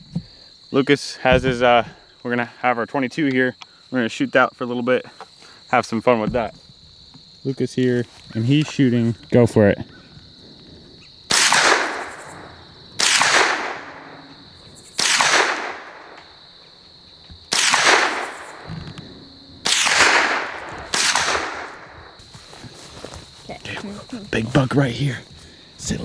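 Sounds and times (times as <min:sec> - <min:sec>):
crickets trilling: 0:00.0 - 0:26.0
rifle shots echoing: 0:11.3 - 0:16.4, 0:17.5 - 0:18.8, 0:19.6 - 0:22.1.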